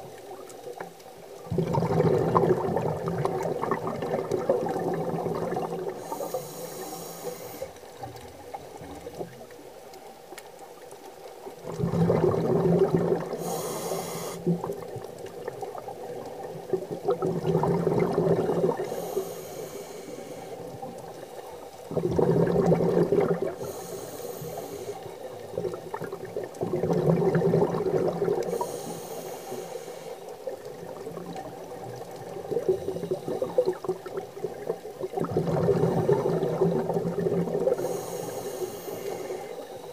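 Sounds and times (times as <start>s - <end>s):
bubbling bursts with hiss: 1.5s - 7.7s, 11.6s - 39.6s
diver breathing through regulator: 5.6s - 7.8s, 13.3s - 14.7s, 18.1s - 25.3s, 28.4s - 30.5s, 37.6s - 39.9s.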